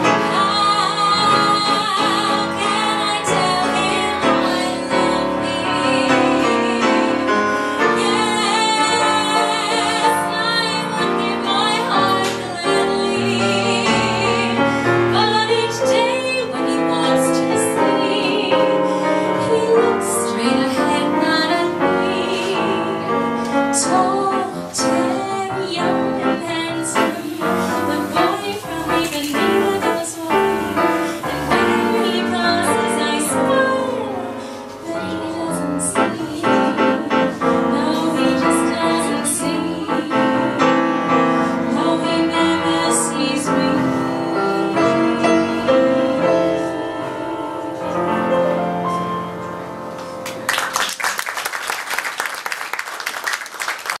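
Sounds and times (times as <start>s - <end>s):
woman singing jazz: 0.0s - 49.7s
grand piano accompaniment: 0.0s - 54.0s
audience applause: 50.2s - 54.0s.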